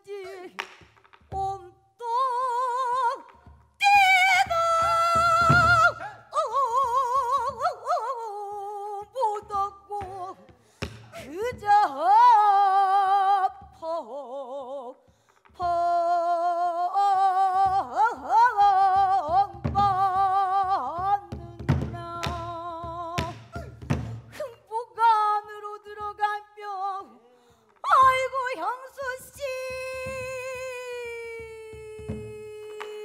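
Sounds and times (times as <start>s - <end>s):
woman singing with wide vibrato: 0.0s - 33.0s
barrel drum strikes: 21.4s - 24.3s.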